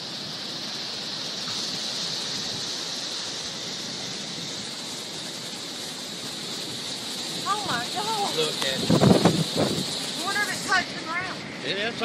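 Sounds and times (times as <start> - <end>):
strong storm wind blowing: 6.2 - 12.0.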